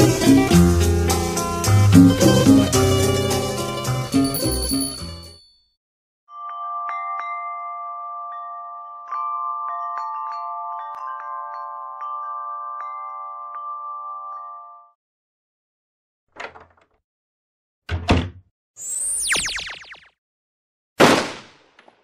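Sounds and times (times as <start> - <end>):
chimes ringing: 4.2 - 5.5.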